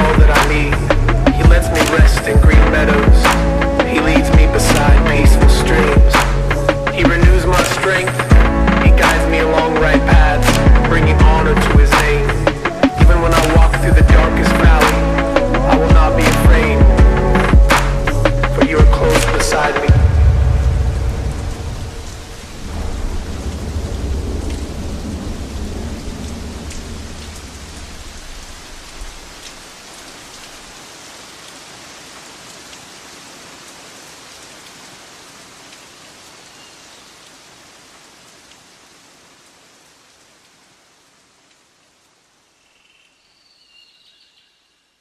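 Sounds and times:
deep thunder rumble: 0:00.0 - 0:29.2
steady rain hiss: 0:00.0 - 0:45.0.

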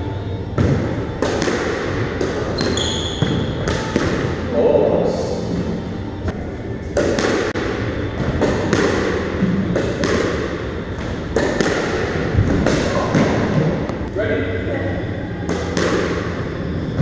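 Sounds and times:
squash ball hits echoing: 0:00.4 - 0:04.6, 0:06.8 - 0:14.0, 0:15.4 - 0:17.0.

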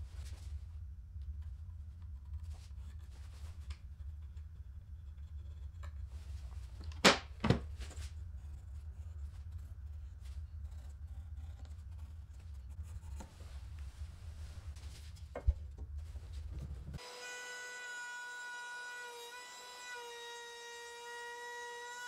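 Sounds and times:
low steady hum: 0:00.0 - 0:17.0
pencil scratching on board: 0:08.4 - 0:13.6.

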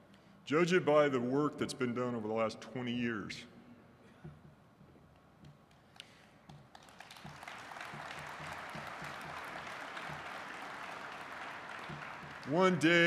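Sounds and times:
audience applauding: 0:05.9 - 0:13.0.

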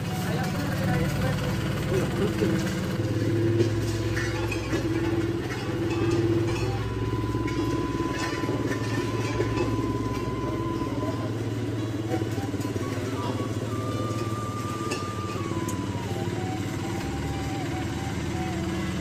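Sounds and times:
metal rakes scraping asphalt: 0:00.0 - 0:15.5
engine running: 0:00.0 - 0:19.0.

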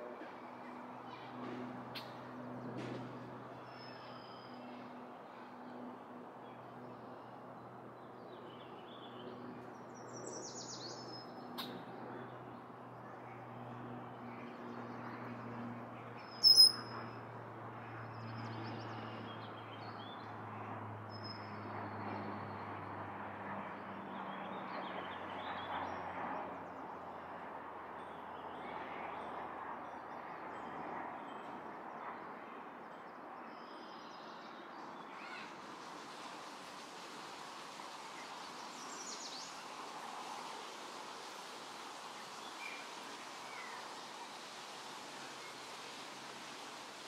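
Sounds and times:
high bird chirps: 0:16.4 - 0:17.0
background hiss: 0:35.6 - 0:47.0.

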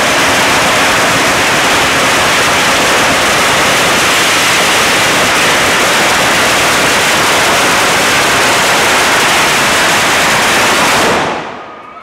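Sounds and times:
firecrackers crackling: 0:00.0 - 0:11.9.

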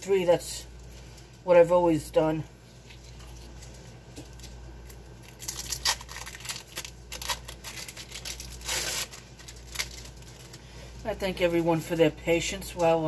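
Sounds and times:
plastic wrapper crinkling: 0:02.7 - 0:11.2.

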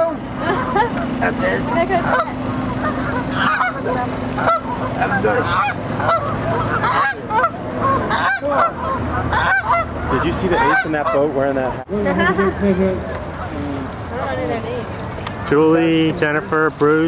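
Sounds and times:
geese honking: 0:00.0 - 0:11.8.

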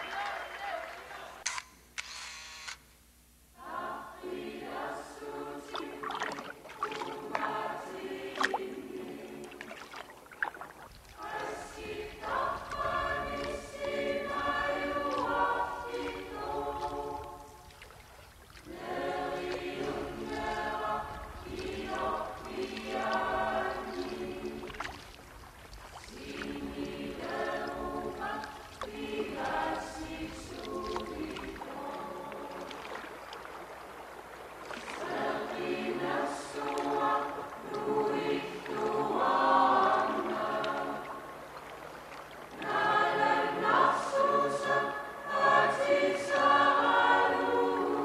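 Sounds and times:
choir singing held notes: 0:03.6 - 0:09.9, 0:11.1 - 0:17.7, 0:18.6 - 0:24.8, 0:26.0 - 0:33.0, 0:34.8 - 0:41.4, 0:42.5 - 0:48.0
water splashing: 0:04.2 - 0:48.0.

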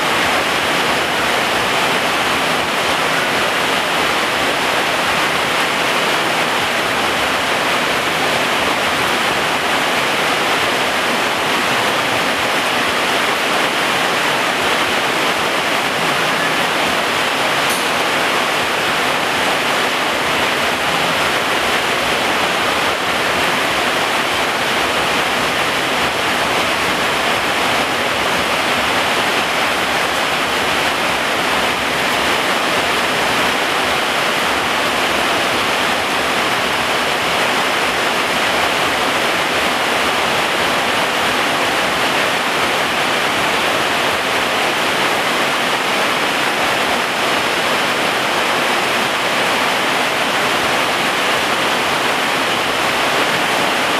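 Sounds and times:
heavy rain on plants: 0:00.0 - 0:53.9.

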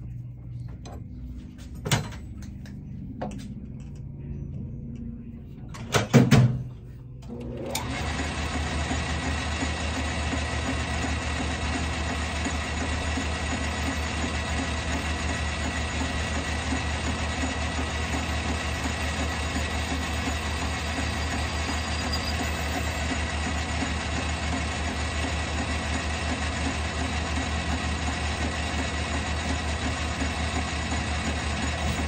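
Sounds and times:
metal lathe running: 0:07.3 - 0:32.0.

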